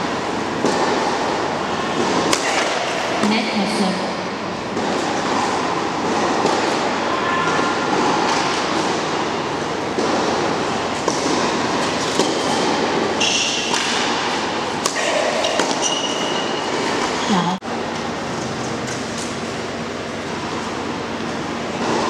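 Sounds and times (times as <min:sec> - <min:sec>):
indoor tennis hall din: 0:00.0 - 0:22.0
tennis ball bouncing on court: 0:04.7 - 0:06.8, 0:09.9 - 0:17.2.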